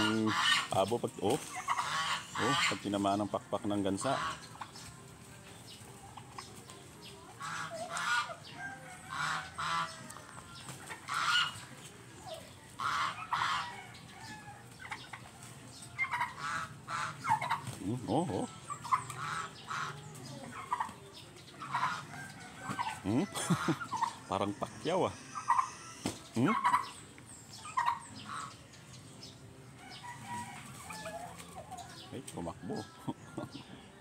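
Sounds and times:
goose honking: 0.0 - 0.9, 1.5 - 3.0, 3.9 - 4.6, 7.4 - 8.4, 9.1 - 10.1, 11.0 - 11.7, 12.8 - 13.9, 16.0 - 17.6, 18.6 - 20.0, 21.6 - 22.1, 24.9 - 27.0, 27.8 - 28.6.

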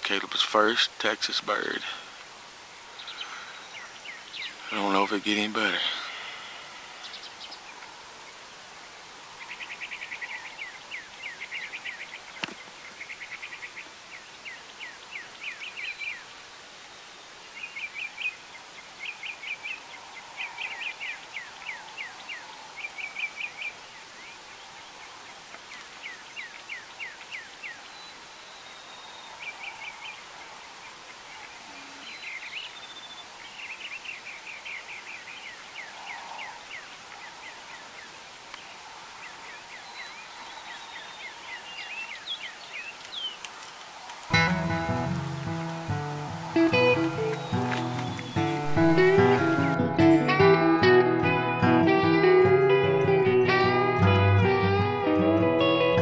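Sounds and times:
outdoor background: 0.0 - 56.0
songbird trilling chirps: 2.9 - 5.5, 6.1 - 8.4, 9.3 - 25.1, 25.7 - 43.4, 44.3 - 49.8.

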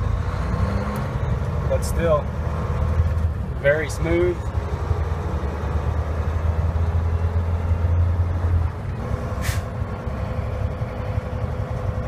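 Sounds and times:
truck diesel engine drone: 0.0 - 12.0
air hiss: 9.4 - 9.7.

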